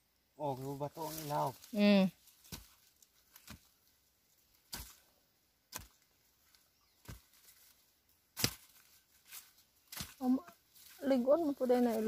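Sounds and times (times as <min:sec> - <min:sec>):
digging tool chopping soil: 0:02.4 - 0:03.7, 0:04.6 - 0:05.0, 0:05.7 - 0:06.0, 0:07.0 - 0:07.4, 0:08.3 - 0:08.9.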